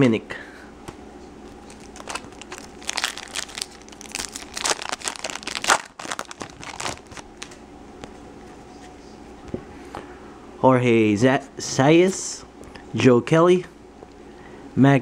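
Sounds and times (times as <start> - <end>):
foil wrapper crinkling and tearing: 1.5 - 7.6.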